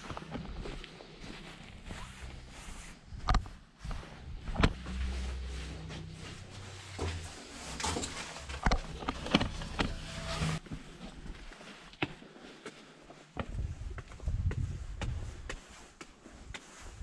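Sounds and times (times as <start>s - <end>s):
low rumble: 1.6s - 10.6s
metal scraping: 3.9s - 10.8s.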